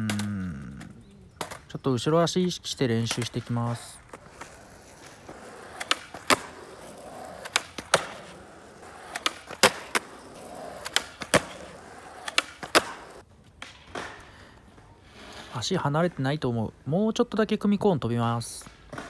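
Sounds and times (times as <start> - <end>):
skateboard clacks: 0.0 - 1.8, 2.5 - 14.9, 18.6 - 19.0
skateboard rolling on asphalt: 0.8 - 16.1
skateboard tail pop and landing: 7.4 - 8.3, 12.2 - 14.3.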